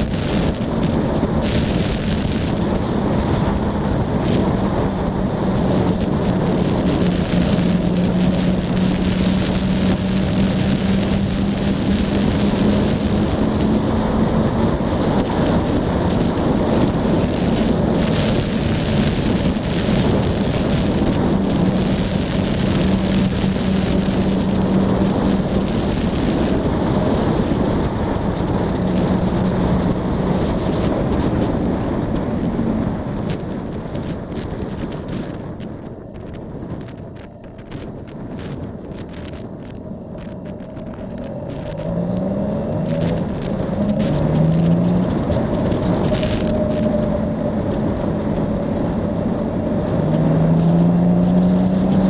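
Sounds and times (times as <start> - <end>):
motorcycle engine drone: 0.0 - 52.0
wind rush over microphone: 0.0 - 52.0.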